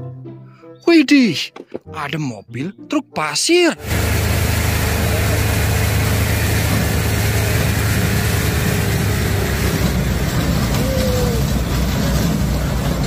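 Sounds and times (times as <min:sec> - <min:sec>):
diesel engine rumbling: 0:03.8 - 0:13.0.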